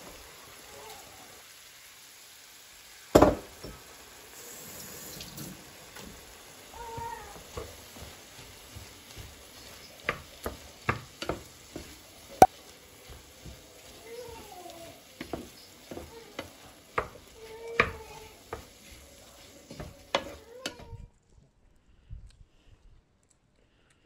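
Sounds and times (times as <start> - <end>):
low sizzle: 0.0 - 21.8
spatula stirring rice in pan: 5.8 - 20.9
spatula tapping pan: 6.8 - 20.8.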